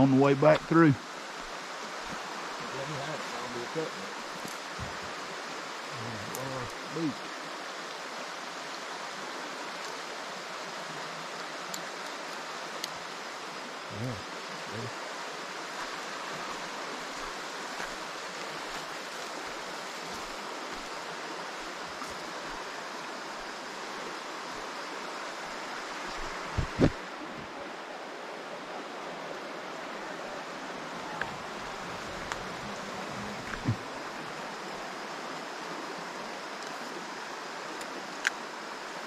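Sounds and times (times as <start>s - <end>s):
creek water flowing: 0.0s - 39.0s.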